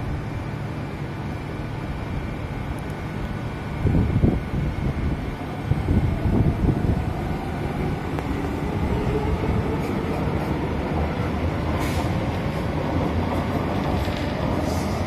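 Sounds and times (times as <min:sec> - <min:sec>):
train rumbling on rails: 0:00.0 - 0:15.0
wind buffeting microphone: 0:03.8 - 0:15.0.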